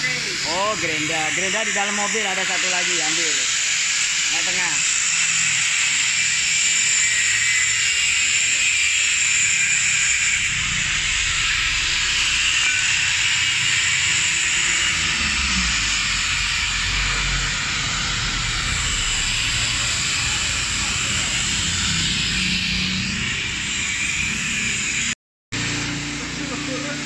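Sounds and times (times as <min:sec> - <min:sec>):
loud steady hiss: 0:00.0 - 0:27.0
low rumble: 0:10.4 - 0:13.3.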